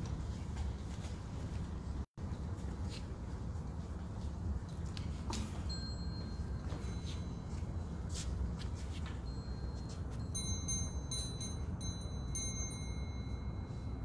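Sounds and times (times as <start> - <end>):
faint pulsing high ringing tone: 5.5 - 14.0.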